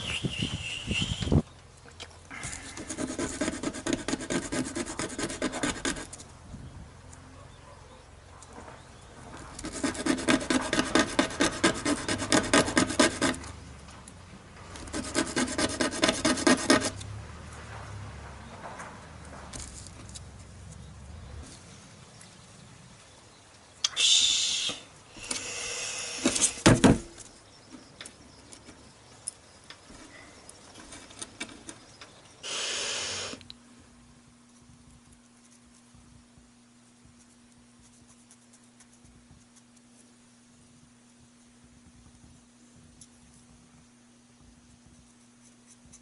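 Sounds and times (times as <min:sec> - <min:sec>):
wood being sanded by hand: 0:02.6 - 0:06.1, 0:09.6 - 0:13.4, 0:14.8 - 0:17.0
faint steady hum: 0:19.5 - 0:46.0
sharp knocks: 0:26.3 - 0:27.2.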